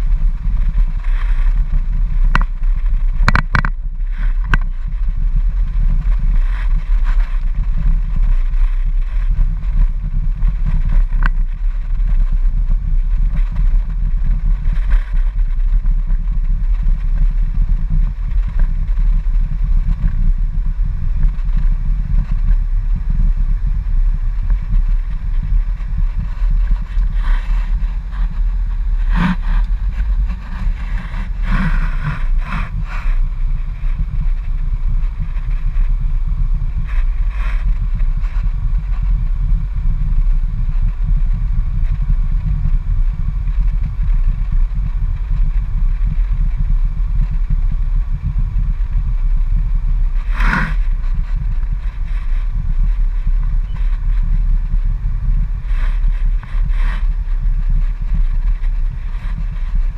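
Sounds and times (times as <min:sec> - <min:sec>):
car cabin rumble: 0:00.0 - 0:59.9
sharp clicks and rattles: 0:00.1 - 0:47.6.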